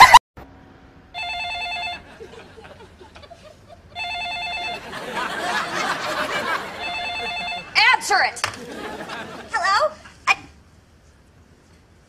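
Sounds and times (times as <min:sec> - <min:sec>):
telephone electronic warbling ring: 0:01.2 - 0:02.0, 0:04.0 - 0:04.9, 0:06.7 - 0:07.8.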